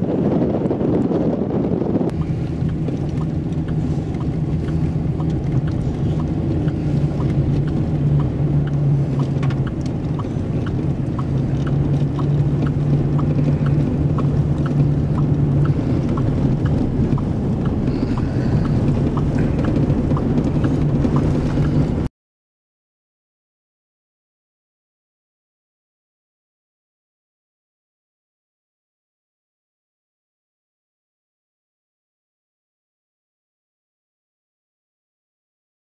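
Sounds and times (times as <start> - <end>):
engine hum: 0.0 - 22.1
road and wind rumble: 0.0 - 22.1.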